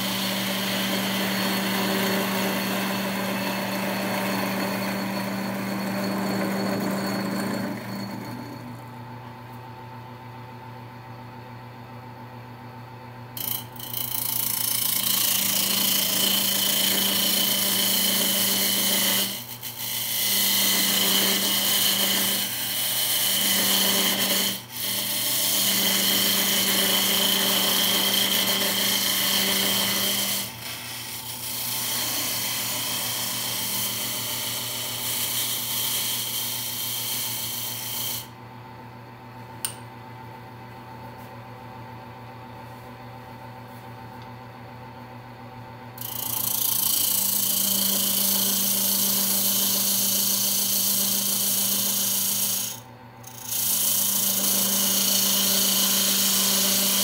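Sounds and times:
turning tool scraping wood: 0.0s - 8.8s, 13.4s - 38.3s, 46.0s - 57.0s
wood lathe humming: 0.0s - 8.9s, 13.4s - 38.4s, 46.0s - 57.0s.

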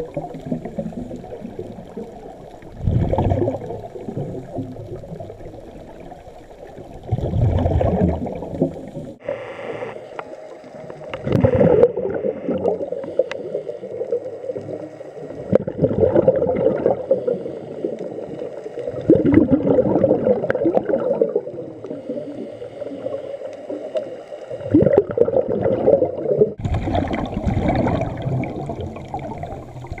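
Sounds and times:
exhaled bubbles gurgling underwater: 0.0s - 9.3s, 10.1s - 30.0s
regulator inhalation hiss: 12.8s - 15.4s, 17.0s - 18.9s, 21.8s - 24.6s.

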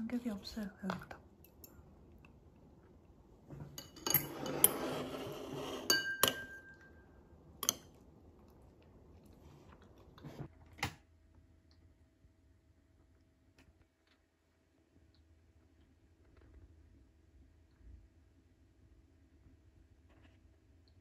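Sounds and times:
chopsticks clinking on bowl: 5.9s - 7.0s.

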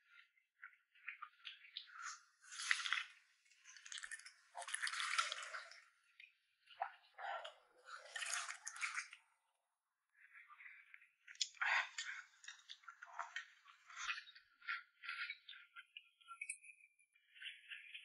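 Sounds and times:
wet chewing and slurping: 2.0s - 5.8s.

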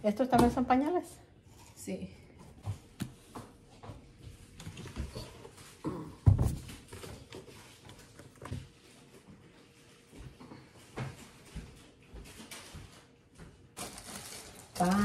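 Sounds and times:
packaging rustling: 13.8s - 15.0s.

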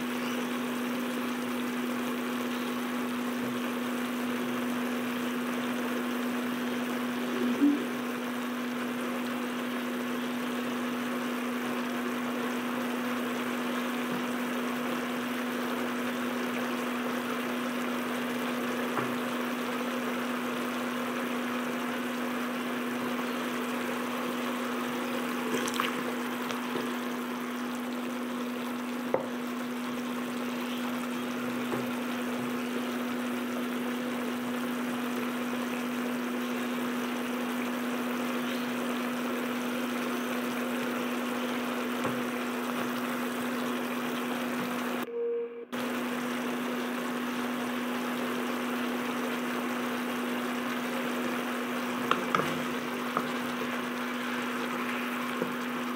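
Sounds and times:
sauce sizzling in a pan: 0.0s - 45.0s, 45.8s - 55.9s
low hum: 44.8s - 46.9s.

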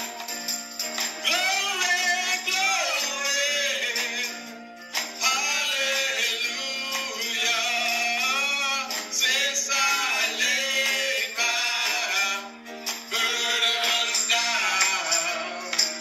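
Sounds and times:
men singing into microphones: 1.2s - 4.5s, 5.1s - 16.0s.

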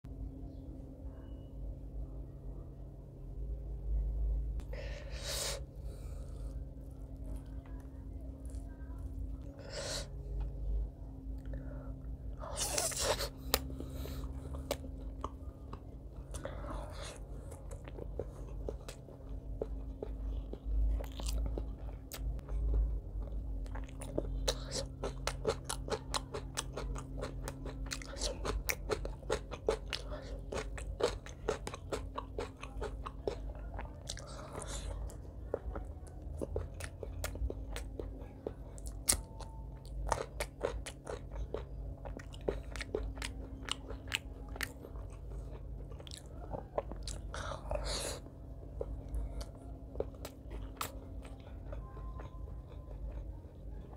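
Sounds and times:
chewing with crunching clicks: 5.5s - 10.6s, 11.2s - 53.9s.

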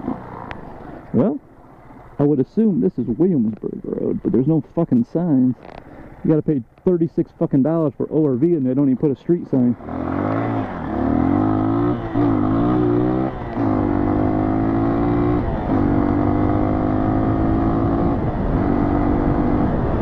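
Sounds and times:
motorcycle engine accelerating: 0.0s - 1.4s, 9.5s - 20.0s.

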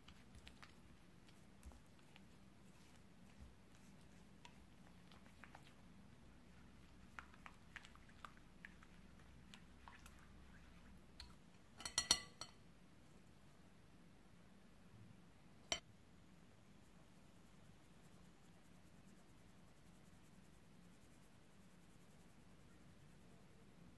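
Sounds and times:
ceramic bowl clinking on sieve: 11.2s - 12.6s
metal sieve clinking on glass bowl: 11.8s - 12.6s.

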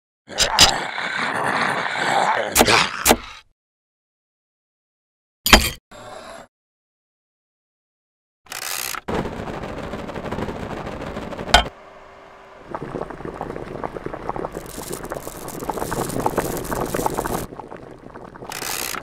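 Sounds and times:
steady noise: 12.5s - 18.5s
food sizzling crackle: 12.7s - 19.0s.

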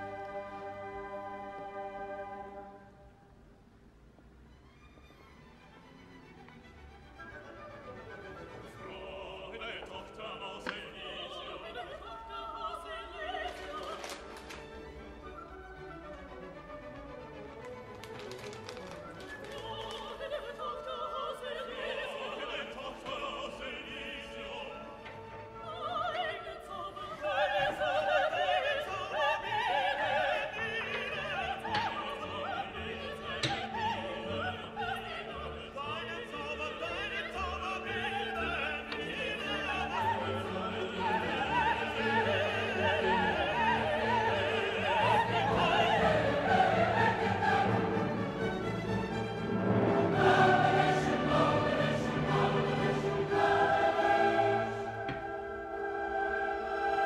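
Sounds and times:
orchestra playing: 0.0s - 3.0s, 14.3s - 19.8s, 29.5s - 57.0s
operatic voice singing: 8.7s - 14.2s, 19.5s - 25.0s, 25.6s - 48.4s.

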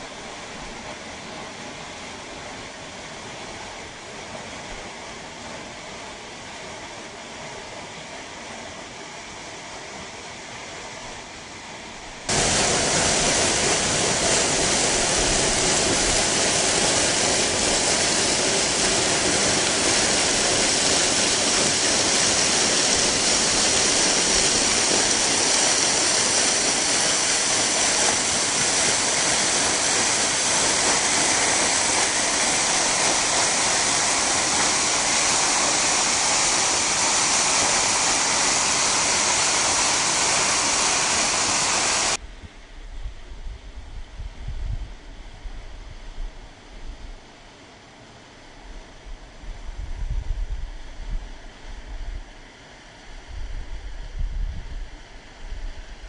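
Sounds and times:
waterfall rushing: 12.3s - 42.2s.

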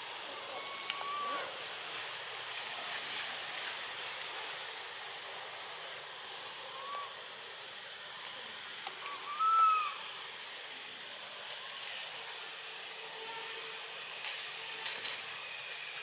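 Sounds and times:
steady hiss: 0.0s - 16.0s
thin high-pitched whine: 0.0s - 16.0s
rising and falling call: 0.5s - 1.5s, 9.0s - 10.0s.

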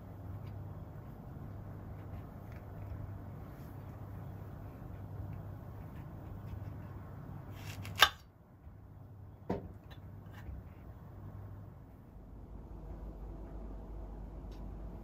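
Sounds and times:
low steady hum: 0.0s - 15.0s
knife clicking through mushroom: 7.6s - 8.2s.

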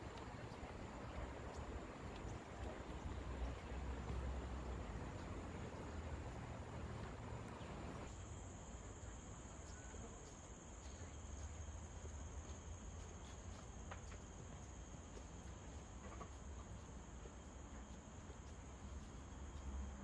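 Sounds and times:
forest insects chorus: 0.2s - 20.0s.

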